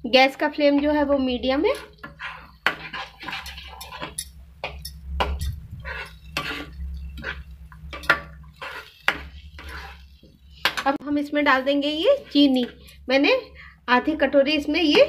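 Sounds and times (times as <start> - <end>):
spoon knocking and scraping pan: 1.6 - 13.0, 14.0 - 15.0
spoon stirring thick sauce: 1.7 - 10.9, 11.5 - 13.0.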